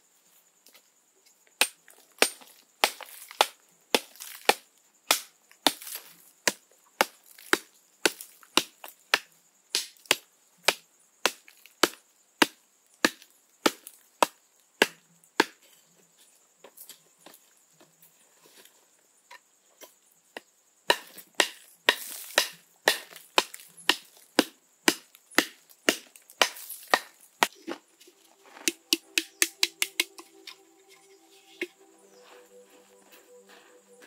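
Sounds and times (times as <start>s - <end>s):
hoe striking stony earth: 20.9s - 30.6s.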